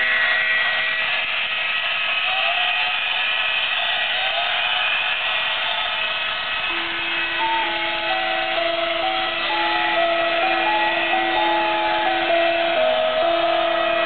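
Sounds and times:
tinny electronic melody: 6.7s - 14.0s.

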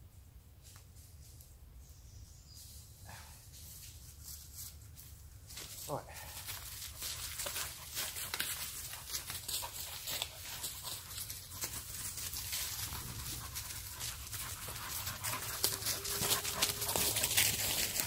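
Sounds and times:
paws rustling leaf litter: 3.6s - 18.0s
dogs panting: 6.6s - 18.0s.

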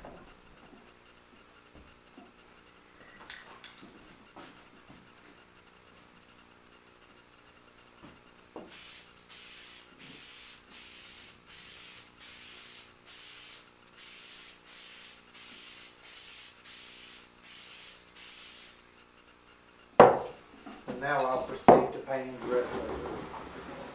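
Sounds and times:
aerosol can spraying: 8.7s - 18.8s.

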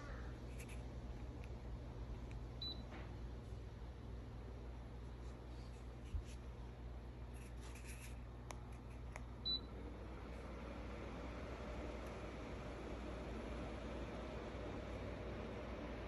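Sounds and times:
fan humming: 0.0s - 16.0s.

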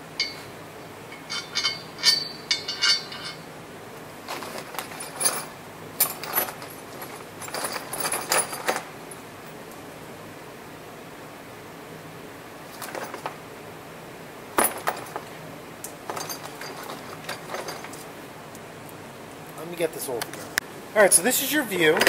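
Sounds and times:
metal bolts and nuts clinking: 0.0s - 3.5s, 4.3s - 9.2s, 14.6s - 15.2s, 16.1s - 18.1s.

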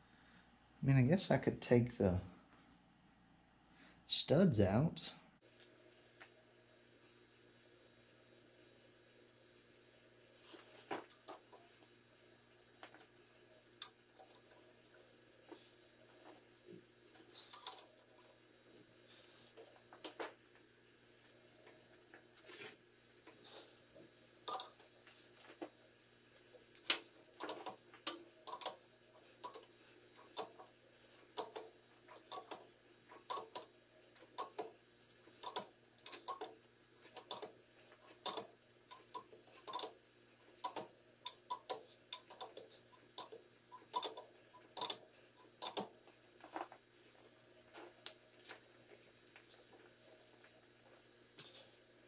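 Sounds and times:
hand ratchet clicking: 40.6s - 45.9s.

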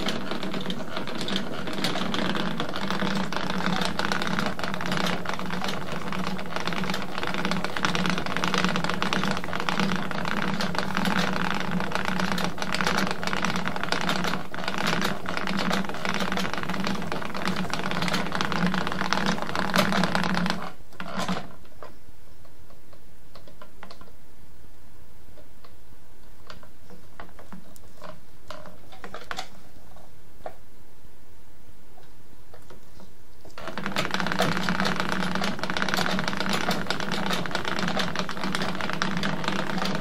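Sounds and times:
spinning wheel clattering: 0.0s - 21.5s, 33.6s - 40.0s.

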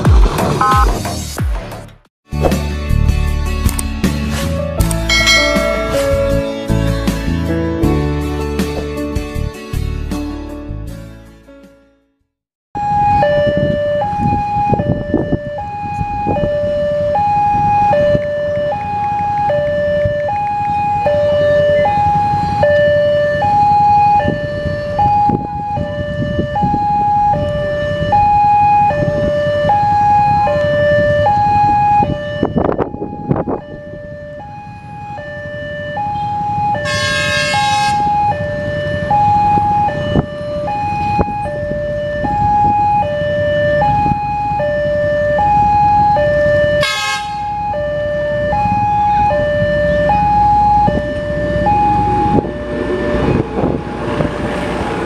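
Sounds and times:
road traffic: 0.0s - 11.1s, 12.8s - 55.0s
two-tone crossing warning alarm: 5.1s - 6.8s, 12.8s - 55.0s.

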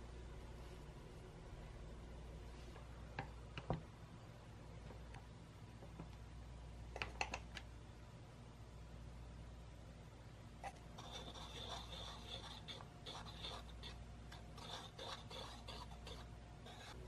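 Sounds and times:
wire whisk scratching in bowl: 10.6s - 17.0s.

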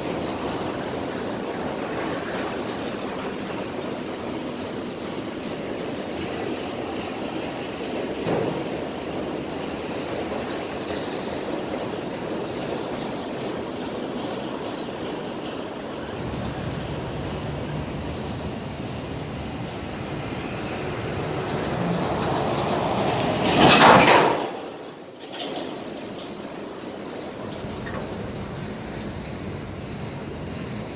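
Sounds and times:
freight train wheels rumbling: 0.0s - 30.9s
loud rush of noise: 16.0s - 25.1s.

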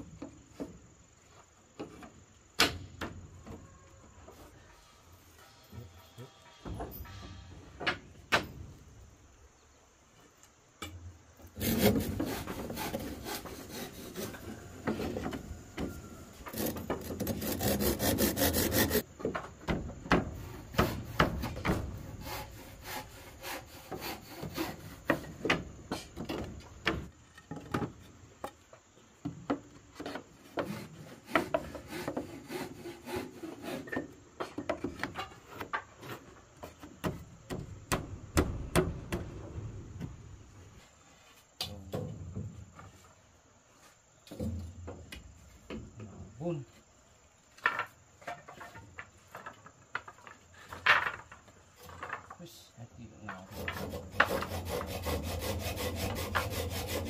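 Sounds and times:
saw cutting wood: 11.6s - 14.6s, 16.4s - 19.0s, 20.7s - 25.3s, 30.6s - 34.0s, 53.4s - 57.0s
sharp knocks on wood: 37.0s - 39.4s.

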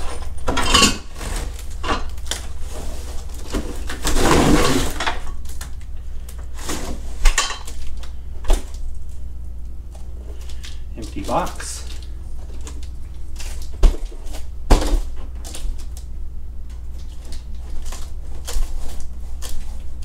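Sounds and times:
cardboard scraping and rustling: 1.0s - 5.2s, 6.5s - 7.3s.

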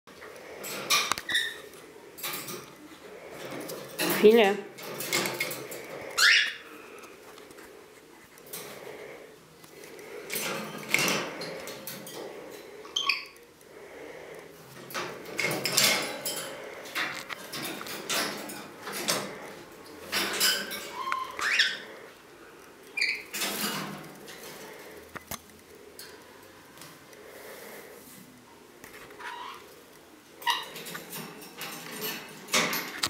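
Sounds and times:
wire cage clinking and rattling: 0.5s - 6.4s, 10.3s - 12.7s, 14.7s - 22.0s, 23.0s - 24.8s, 30.4s - 33.0s
parrot screeching and chirping: 0.9s - 1.7s, 6.0s - 6.8s, 12.8s - 13.4s, 20.4s - 22.1s, 23.0s - 23.4s, 29.2s - 29.7s, 30.4s - 30.8s.

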